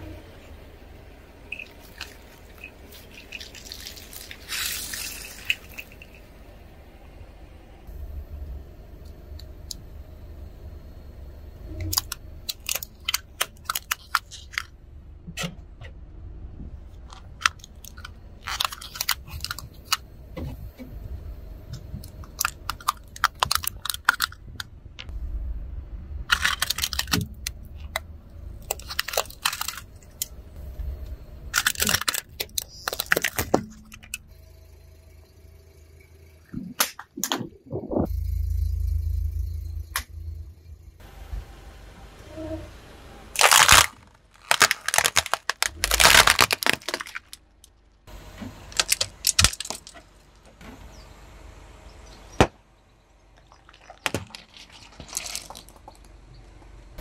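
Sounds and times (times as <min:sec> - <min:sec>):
low rumble: 0:00.0 - 0:13.1, 0:14.5 - 0:18.5, 0:19.3 - 0:43.5
plastic toys cracking and snapping: 0:11.9 - 0:14.7, 0:17.1 - 0:20.0, 0:22.0 - 0:24.7, 0:26.3 - 0:28.0, 0:28.6 - 0:30.3, 0:31.6 - 0:34.2, 0:43.4 - 0:47.8, 0:48.7 - 0:50.0, 0:53.7 - 0:56.1.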